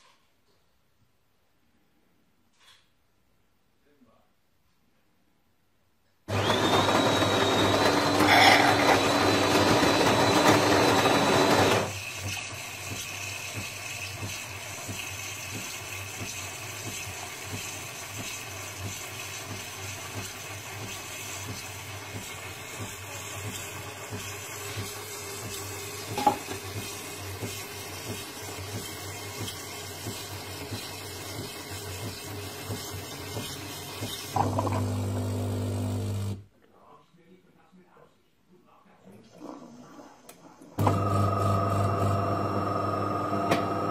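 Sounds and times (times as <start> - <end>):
milk frother hissing and whining: 6.3 - 36.4, 40.8 - 43.9.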